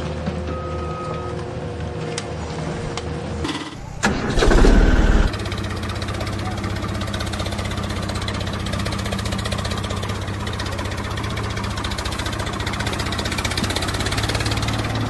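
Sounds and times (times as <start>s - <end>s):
diesel tractor engine idling: 3.8s - 15.0s.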